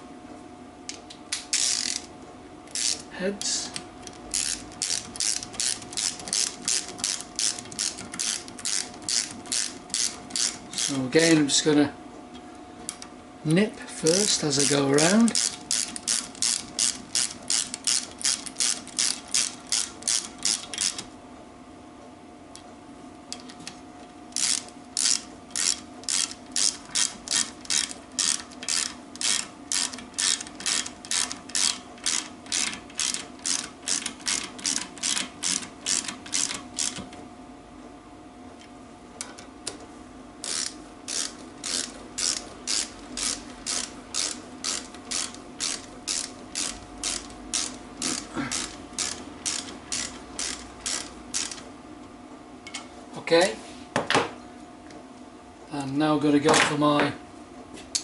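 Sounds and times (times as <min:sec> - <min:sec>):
socket ratchet clicking: 0:01.3 - 0:02.1, 0:04.0 - 0:11.0, 0:14.6 - 0:21.1, 0:24.4 - 0:37.1, 0:40.4 - 0:51.6.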